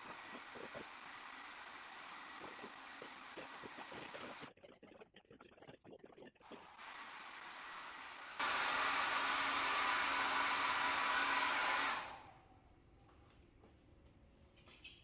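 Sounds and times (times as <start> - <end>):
hair dryer blowing: 0.0 - 4.5, 6.7 - 12.3.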